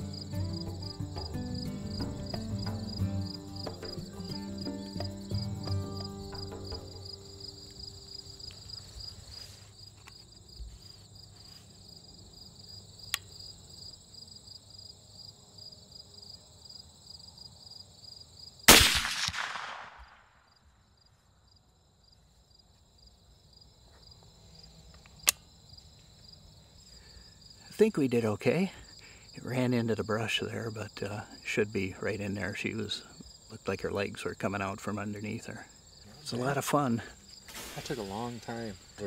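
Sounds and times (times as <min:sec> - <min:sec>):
insects chirping: 0:00.0 - 0:39.0
rifle shot: 0:18.7 - 0:20.4.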